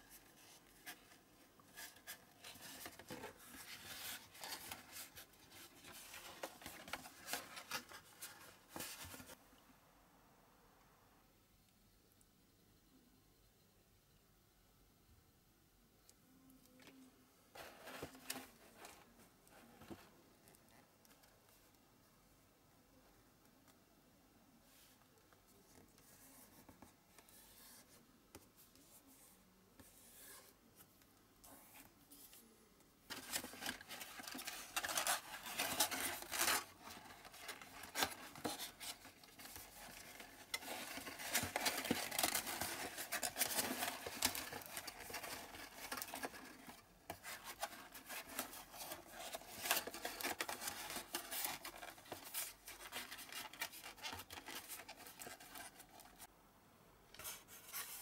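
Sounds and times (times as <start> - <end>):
thin card rustling and scraping: 0.0 - 9.4, 17.6 - 20.0, 33.1 - 56.3, 57.2 - 58.0.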